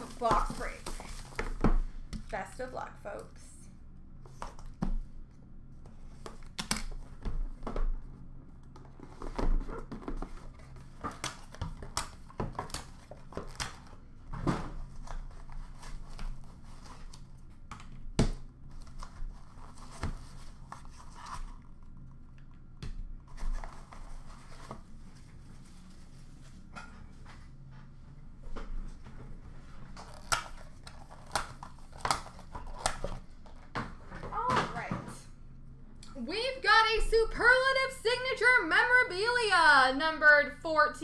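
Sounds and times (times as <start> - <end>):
plastic wrap crinkling and tearing: 30.0 - 33.2.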